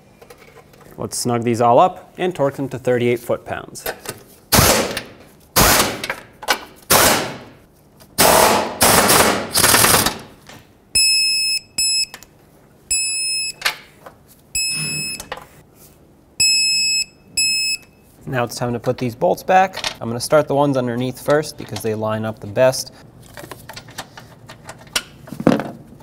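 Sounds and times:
torque wrench high beeps: 11.0 - 12.2, 12.9 - 13.6, 14.6 - 15.3, 16.4 - 18.0.

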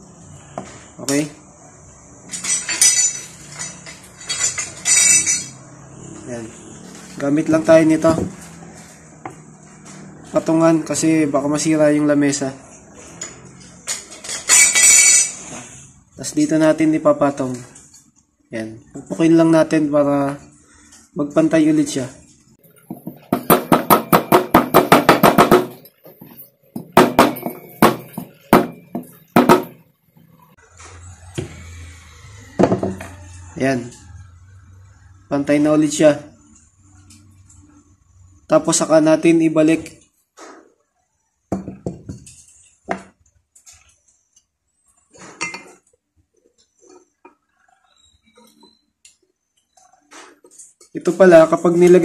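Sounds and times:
small metal parts clinking: 2.2 - 5.6, 13.2 - 15.4, 25.7 - 29.8
hammer tapping metal: 22.9 - 29.8.

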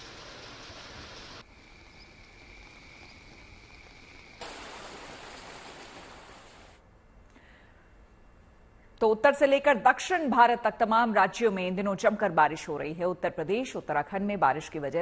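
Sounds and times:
high insect trill: 0.7 - 5.8.

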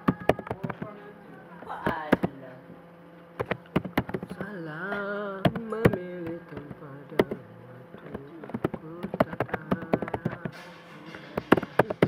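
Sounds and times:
keyboard keys clicking: 3.4 - 4.5, 8.1 - 10.6.

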